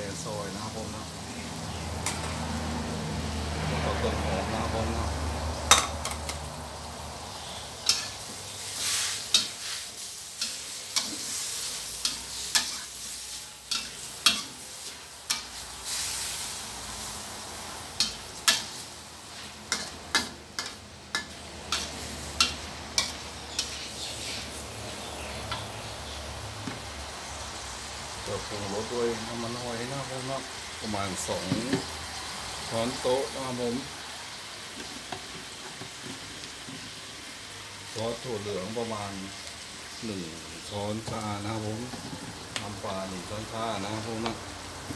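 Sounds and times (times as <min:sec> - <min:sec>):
food sizzling while stir-frying: 0:00.0 - 0:44.9
metal spatula scraping a wok: 0:07.4 - 0:17.2, 0:18.0 - 0:24.6.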